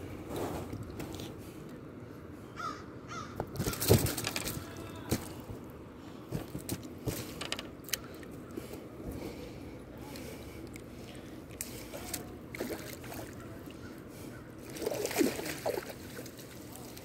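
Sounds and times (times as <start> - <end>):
bird calling: 2.5 - 3.9
clicks and knocks of gear: 3.4 - 5.3.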